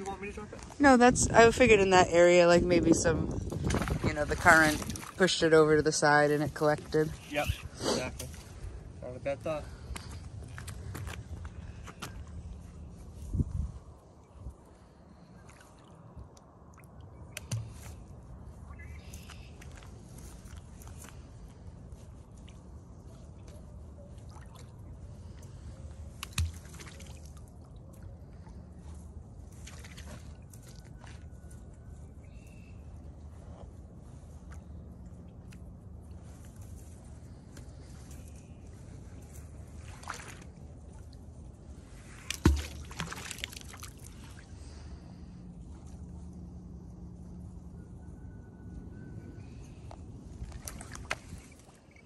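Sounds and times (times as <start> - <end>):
river water trickling: 1.8 - 13.1, 13.8 - 47.7, 49.4 - 52.0
small water splashes: 3.5 - 5.4, 15.1 - 18.0, 24.1 - 28.7, 29.4 - 31.2, 39.7 - 44.9, 50.4 - 52.0
low steady rumble: 8.3 - 52.0
magnet splashing into water: 42.2 - 44.1.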